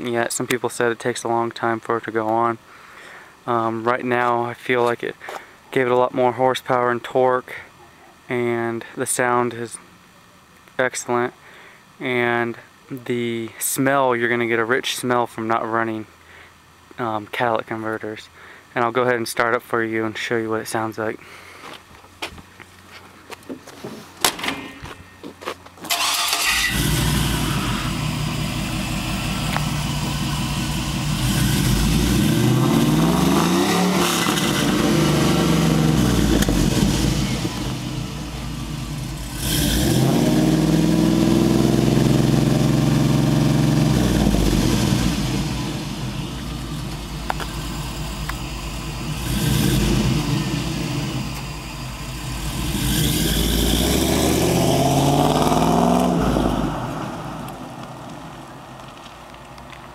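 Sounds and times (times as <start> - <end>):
car engine starting: 25.9 - 59.4
car engine idling and revving: 25.9 - 59.9.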